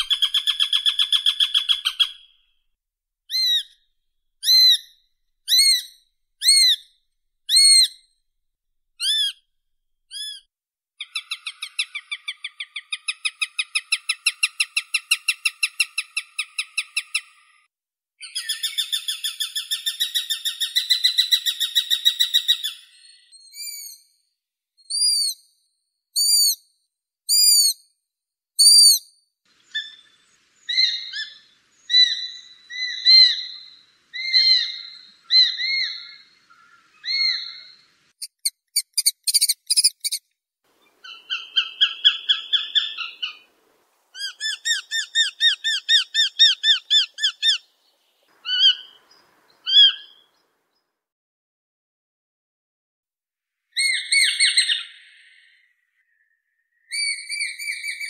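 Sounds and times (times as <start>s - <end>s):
hawk chattering calls: 44.2s - 47.7s.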